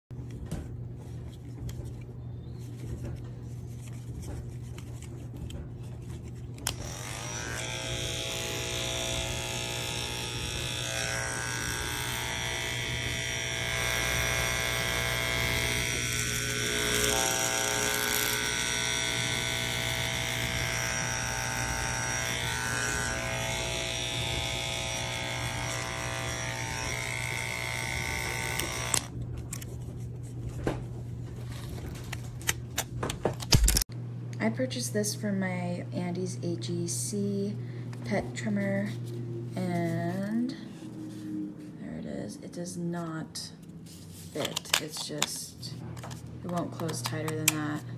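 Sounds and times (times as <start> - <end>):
pet clipper humming: 5.4 - 29.7, 32.0 - 33.9, 44.4 - 47.9.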